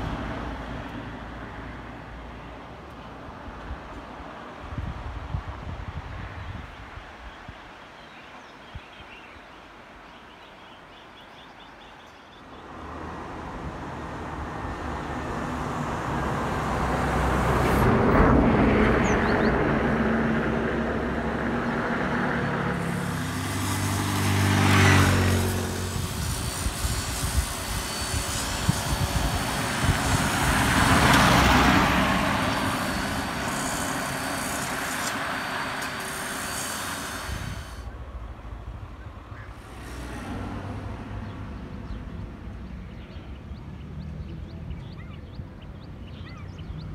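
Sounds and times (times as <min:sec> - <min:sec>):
road traffic passing: 0:00.0 - 0:08.6, 0:09.2 - 0:46.9
motor scooter engine passing: 0:12.8 - 0:37.9.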